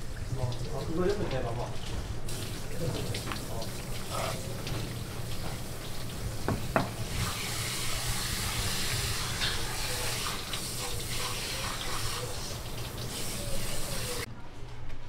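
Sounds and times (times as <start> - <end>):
water spraying from sink sprayer: 0.0 - 14.3
sharp knocks: 6.5 - 7.0.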